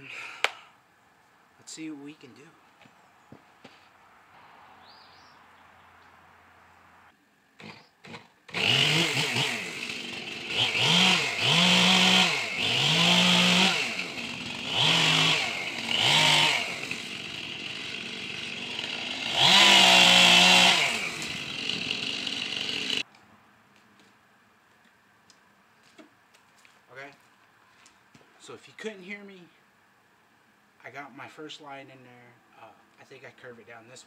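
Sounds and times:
chainsaw engine sputtering: 0:07.6 - 0:23.0
chainsaw idling and revving: 0:07.6 - 0:23.0.

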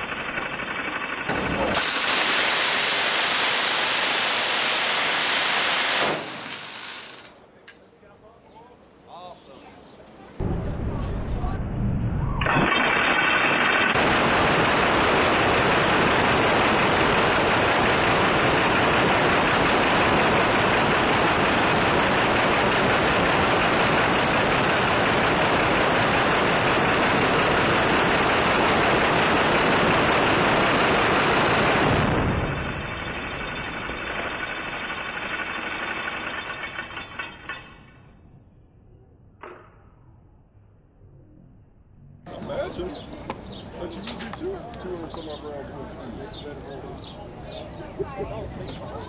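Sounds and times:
minigun firing continuously: 0:00.0 - 0:07.4, 0:12.3 - 0:37.6.

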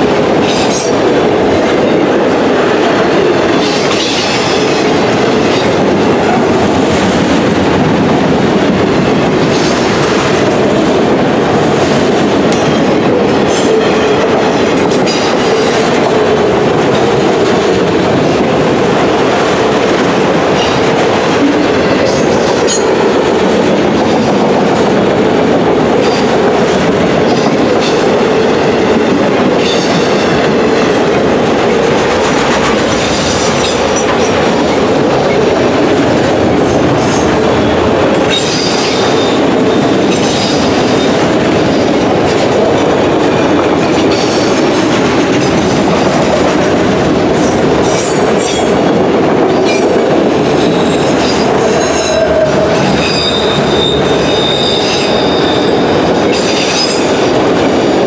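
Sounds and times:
freight train rumbling: 0:00.0 - 0:58.0
high wheel squeals: 0:52.0 - 0:55.9.

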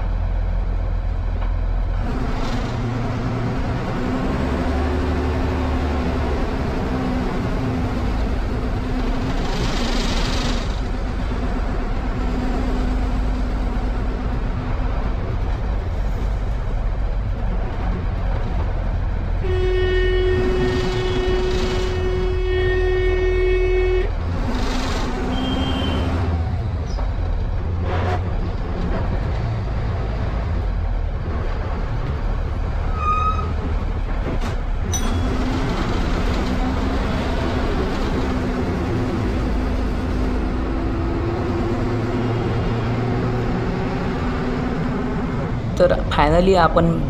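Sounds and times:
bus engine running: 0:00.0 - 0:47.0
road noise: 0:00.0 - 0:47.0
bus horn: 0:19.4 - 0:26.3.

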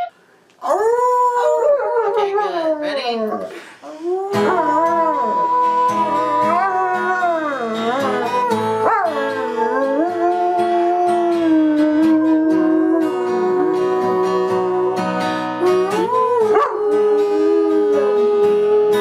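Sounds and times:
dog howling: 0:00.6 - 0:19.0
strummed acoustic guitar: 0:04.3 - 0:19.0.

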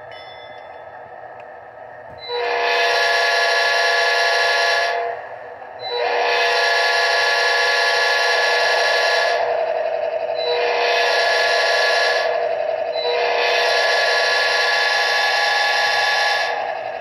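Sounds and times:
model train air horn blasts: 0:02.2 - 0:05.2, 0:05.9 - 0:09.7, 0:10.5 - 0:16.7.

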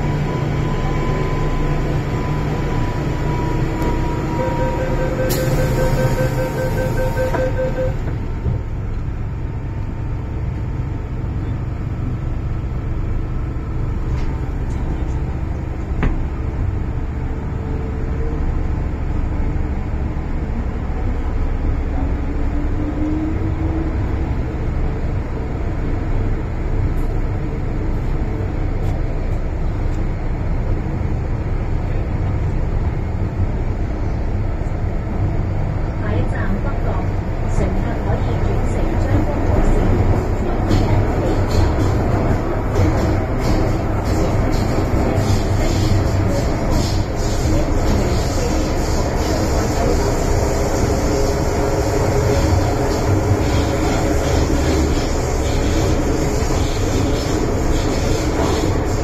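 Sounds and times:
rapid electronic beeps: 0:04.3 - 0:08.0
train wheels rumbling: 0:19.1 - 0:59.0.

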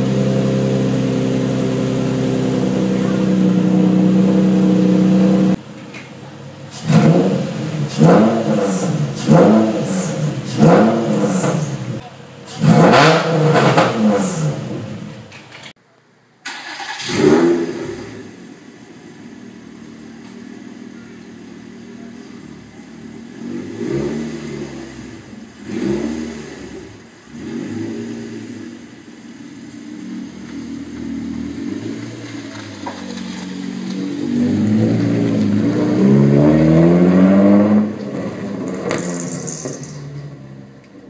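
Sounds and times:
car accelerating away: 0:00.0 - 0:05.6, 0:06.6 - 0:15.2, 0:16.5 - 0:41.0
engine revving: 0:00.0 - 0:05.6, 0:06.7 - 0:15.2, 0:16.5 - 0:18.6, 0:21.8 - 0:40.4
car engine idling: 0:00.0 - 0:12.8, 0:16.4 - 0:37.0.

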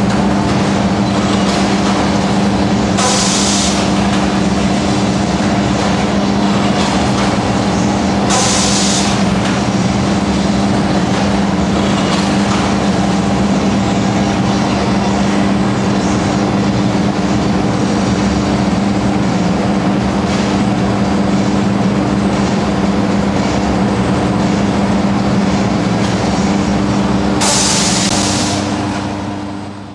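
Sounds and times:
industrial machinery droning hum: 0:00.0 - 0:29.9.

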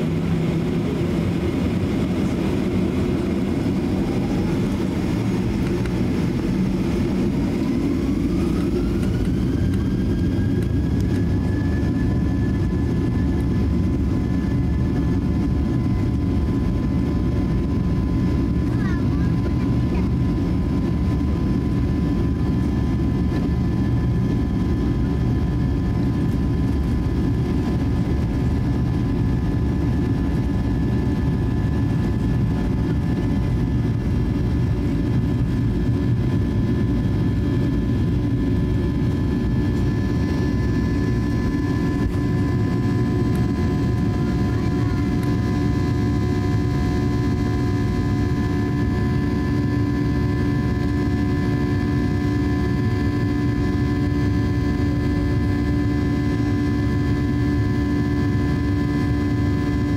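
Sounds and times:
steady engine tones: 0:00.0 - 0:14.1
jet engines rumbling: 0:00.0 - 0:59.9.

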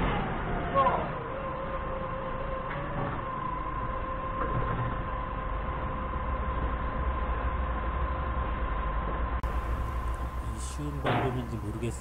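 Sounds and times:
steady high whine: 0:00.0 - 0:12.0
forklift engine idling: 0:05.0 - 0:12.0.

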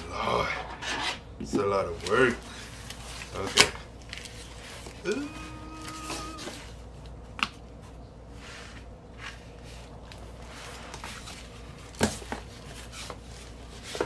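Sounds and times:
cardboard rustling and scraping: 0:08.4 - 0:14.0.

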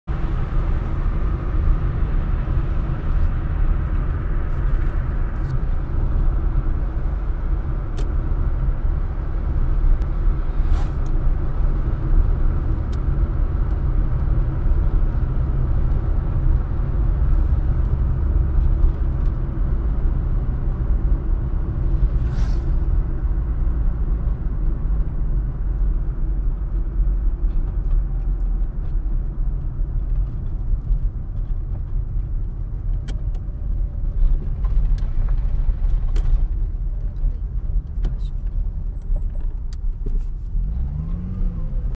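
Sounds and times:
car engine and tyre rumble: 0:00.0 - 0:41.9
brief hiss: 0:22.2 - 0:22.8.

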